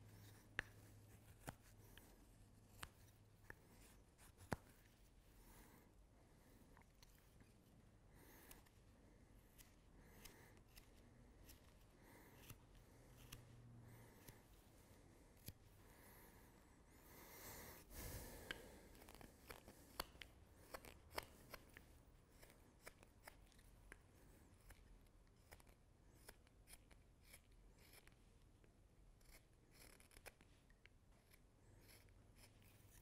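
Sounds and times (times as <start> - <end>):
knife carving wood snicks: 0.2 - 4.9, 8.2 - 8.7, 9.4 - 14.6, 17.7 - 28.2, 29.2 - 33.0.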